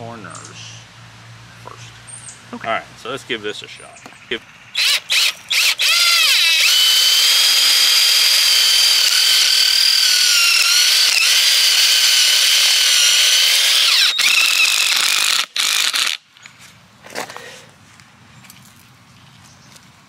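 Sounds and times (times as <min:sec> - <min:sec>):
power drill whining under load: 0:04.8 - 0:16.2.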